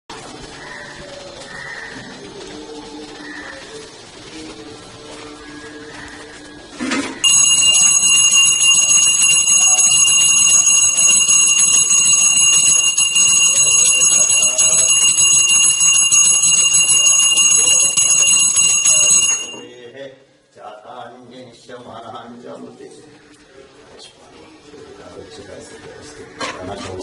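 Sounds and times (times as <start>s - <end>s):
temple bell ringing: 7.2s - 19.8s.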